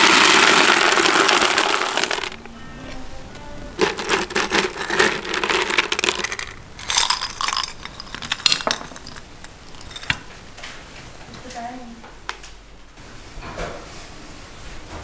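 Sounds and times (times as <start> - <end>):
hard candy clattering: 0.0 - 2.5, 3.8 - 10.3.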